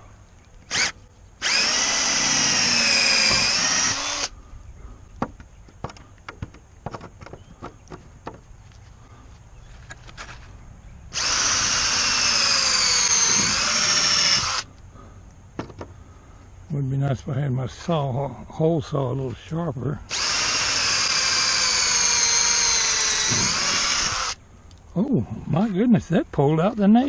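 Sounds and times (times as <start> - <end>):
cordless drill whining: 0.6 - 4.3, 11.1 - 14.7, 20.1 - 24.4.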